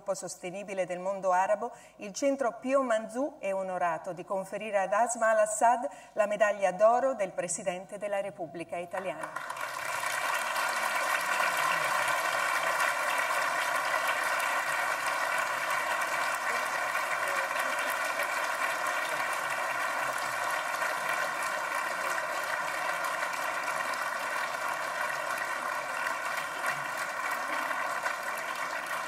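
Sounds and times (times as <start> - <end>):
audience applauding: 9.2 - 29.0.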